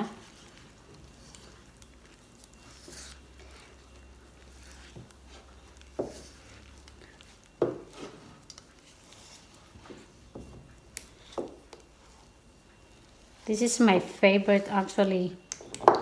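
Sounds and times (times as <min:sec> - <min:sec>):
whisk stirring thick batter: 0:00.0 - 0:14.7.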